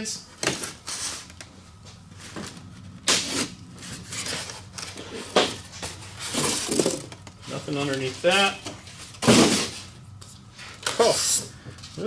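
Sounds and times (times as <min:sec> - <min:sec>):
tape tearing: 0:03.0 - 0:08.1, 0:09.2 - 0:09.9.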